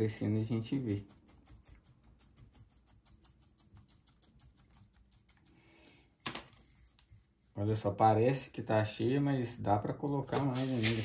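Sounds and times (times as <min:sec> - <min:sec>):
potting soil rustling and clicking: 0:00.0 - 0:05.5, 0:10.1 - 0:11.0.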